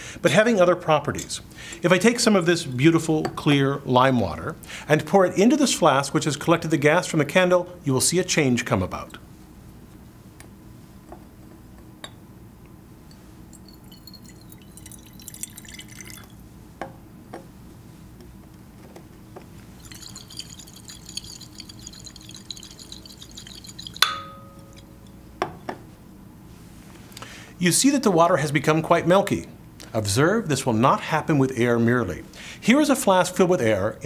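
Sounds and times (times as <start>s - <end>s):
glass flask clinking down: 13.5s - 16.4s, 19.8s - 25.2s
liquid sloshing in flask: 13.5s - 16.4s, 19.6s - 24.1s
water pouring into glass flask: 13.6s - 16.4s, 19.7s - 24.9s.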